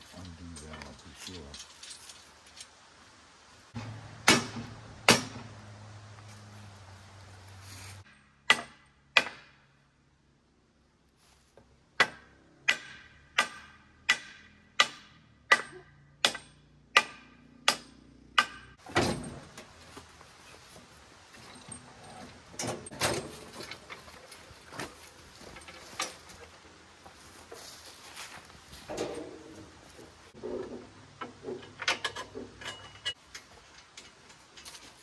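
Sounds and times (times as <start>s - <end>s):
hammer striking steel: 3.8s - 5.5s, 8.1s - 9.6s, 12.0s - 18.8s.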